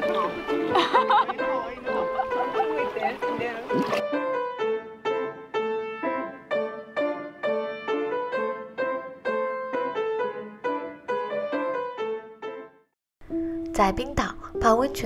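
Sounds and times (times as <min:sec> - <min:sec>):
piano melody: 0:00.0 - 0:15.0.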